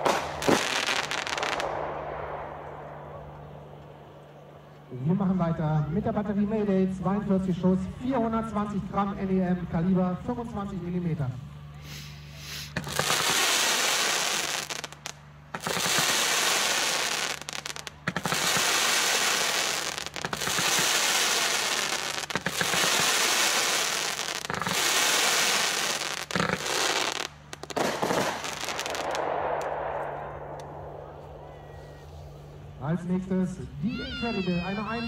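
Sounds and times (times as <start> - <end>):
sharp firework cracks: 0.0 - 4.4, 12.7 - 32.6
fireworks firing: 0.0 - 4.8, 12.0 - 32.7.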